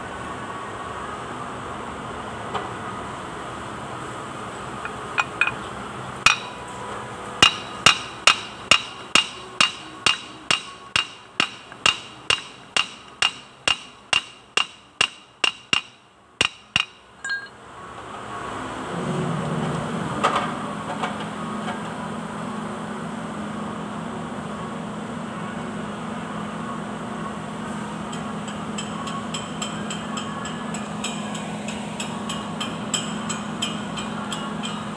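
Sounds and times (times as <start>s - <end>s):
hammer tapping on metal: 6.3s - 6.6s, 7.4s - 17.5s, 28.1s - 34.9s.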